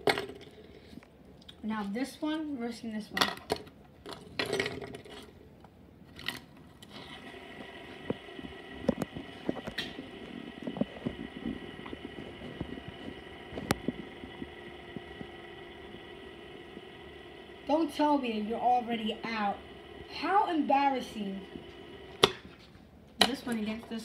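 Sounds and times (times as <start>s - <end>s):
fidget spinners whirring: 6.8s - 22.5s.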